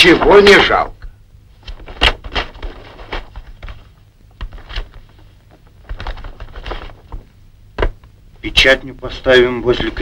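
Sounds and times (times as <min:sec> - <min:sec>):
low steady hum: 0:00.0 - 0:10.0
stiff paper rustling and crackling: 0:01.6 - 0:07.2.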